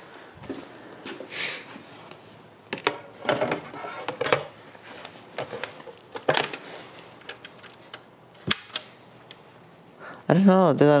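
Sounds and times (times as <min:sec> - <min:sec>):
vinyl record clicks and knocks: 0:02.7 - 0:04.6.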